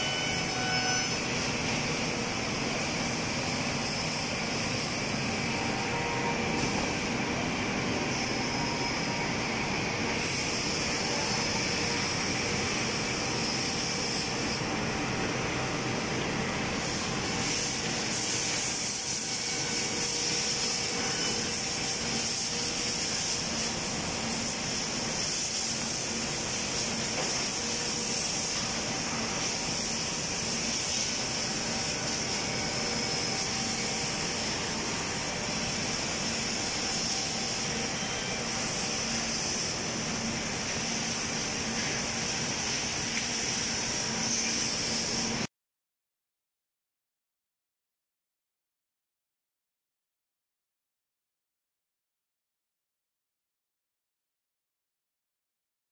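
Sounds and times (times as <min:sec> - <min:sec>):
woodworking machinery running: 0:00.0 - 0:45.4
hiss: 0:00.2 - 0:07.3, 0:10.1 - 0:14.8, 0:16.7 - 0:45.5.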